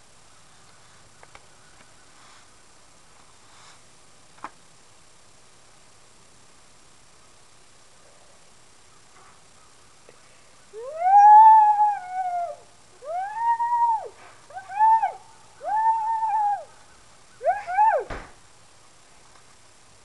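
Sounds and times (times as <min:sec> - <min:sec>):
sharp thump: 0:18.1 - 0:18.4.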